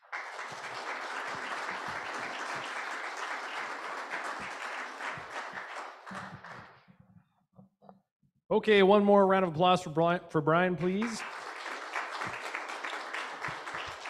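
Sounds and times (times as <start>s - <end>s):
audience applauding: 0.0s - 6.8s, 10.8s - 14.0s.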